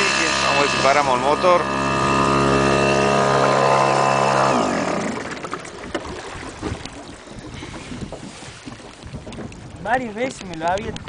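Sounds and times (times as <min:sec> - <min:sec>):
boat motor winding down: 0:00.0 - 0:08.2.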